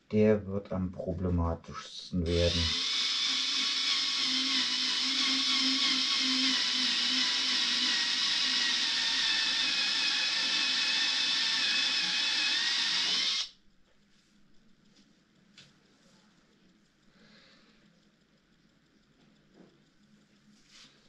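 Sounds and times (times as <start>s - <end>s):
cordless drill whining: 2.3s - 13.5s.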